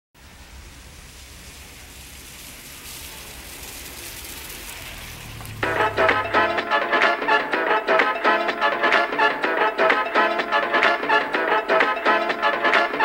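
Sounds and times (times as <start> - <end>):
rain-like hiss: 0.2 - 6.8
low hum: 0.2 - 7.5
dance music: 5.5 - 13.0.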